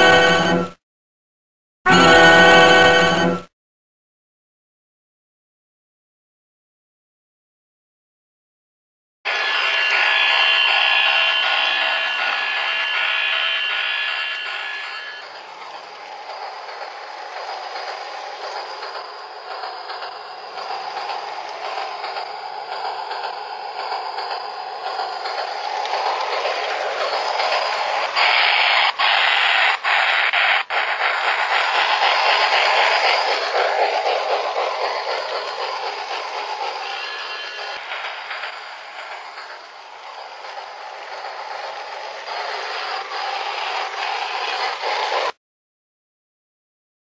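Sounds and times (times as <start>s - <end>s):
model locomotive rattling on track: 9.3s - 45.4s.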